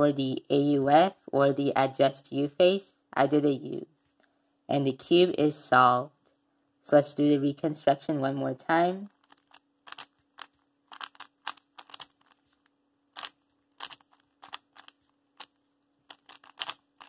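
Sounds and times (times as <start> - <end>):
puzzle cube clicking: 9.1 - 17.0.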